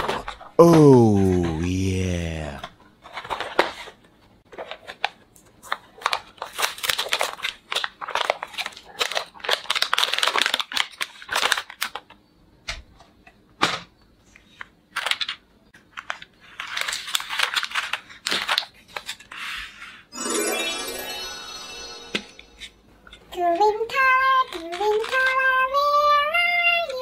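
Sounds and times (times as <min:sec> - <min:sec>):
plastic packaging crinkling: 0:06.0 - 0:12.0, 0:16.6 - 0:19.2.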